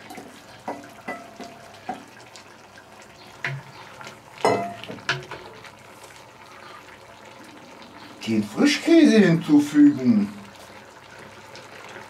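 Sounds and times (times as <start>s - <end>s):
food sizzling in a pot: 0.0s - 12.0s
spoon knocking and scraping pot: 4.4s - 5.5s.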